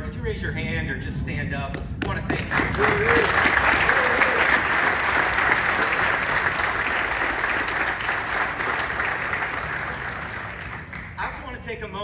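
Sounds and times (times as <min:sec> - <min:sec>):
audience applauding: 0:02.2 - 0:11.4.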